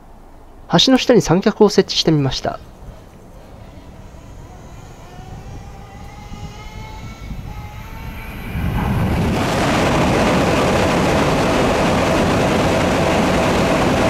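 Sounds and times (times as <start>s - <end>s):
high-speed train whine: 0.0s - 14.0s
train roaring over bridge: 0.0s - 14.0s
train rumble: 0.0s - 14.0s.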